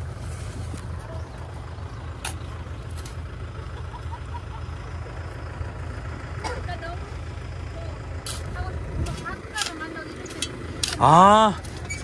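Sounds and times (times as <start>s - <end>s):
tractor engine rumbling: 0.0s - 12.0s
shovel working soil: 8.2s - 12.0s.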